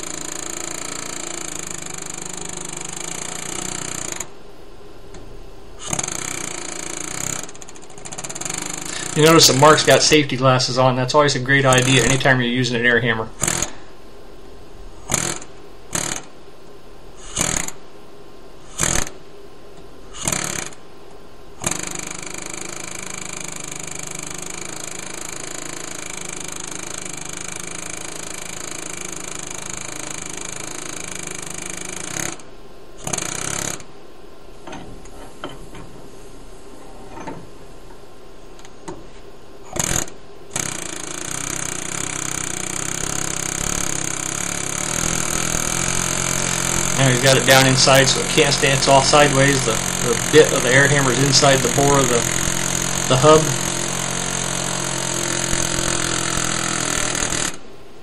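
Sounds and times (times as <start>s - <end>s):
pneumatic air hammer hammering: 0.0s - 4.3s, 5.8s - 10.0s, 11.7s - 12.3s, 13.4s - 13.8s, 15.0s - 16.3s, 17.2s - 17.8s, 18.6s - 19.2s, 20.1s - 20.8s, 21.6s - 33.9s, 39.6s - 57.7s.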